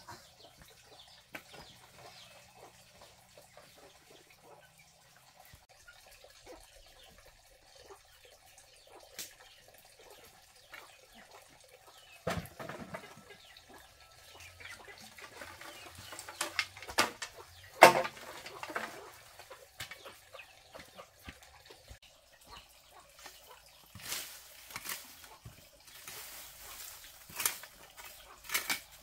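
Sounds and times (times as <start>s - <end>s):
bamboo pieces knocking and clattering: 12.2s - 13.5s, 14.6s - 22.0s, 23.2s - 29.0s
hollow knocks: 15.2s - 20.1s
dry straw rustling: 23.1s - 29.0s.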